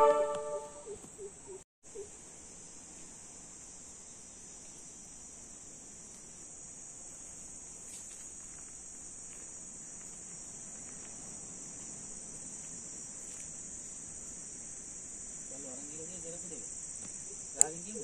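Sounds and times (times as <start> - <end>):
insects shrilling: 3.7 - 18.0.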